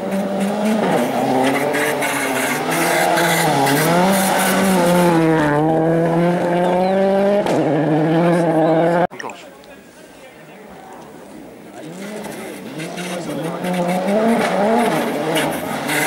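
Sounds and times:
rally car engine at high revs: 0.0 - 9.1, 11.8 - 16.0.

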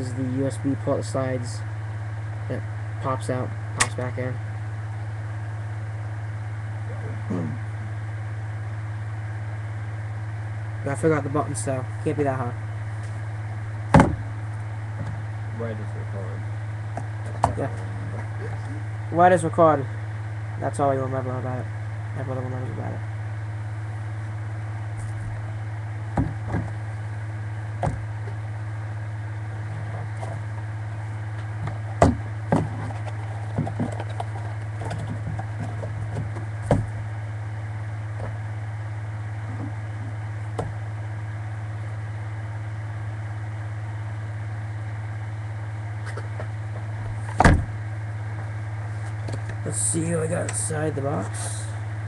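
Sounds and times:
low electrical hum: 0.0 - 52.0.

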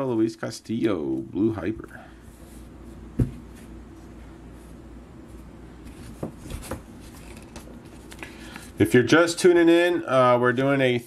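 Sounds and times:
objects knocking on a table: 3.2 - 3.4.

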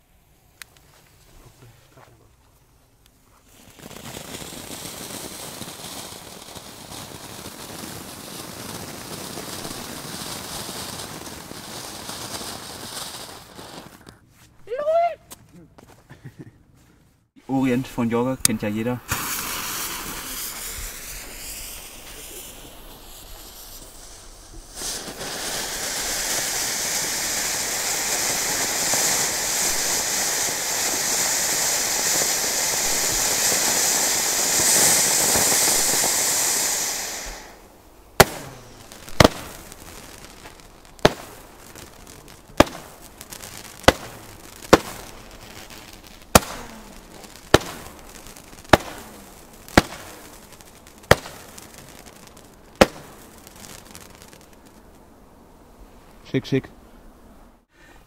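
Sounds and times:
firework fountain spraying sparks: 3.1 - 14.3, 17.5 - 55.1
sharp firework bangs: 3.6 - 14.0, 17.9 - 54.8
fuse hissing: 17.4 - 53.5.

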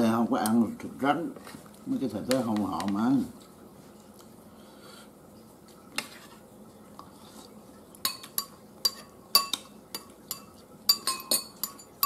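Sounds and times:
metal spoons clinking on bowls: 8.0 - 12.0.

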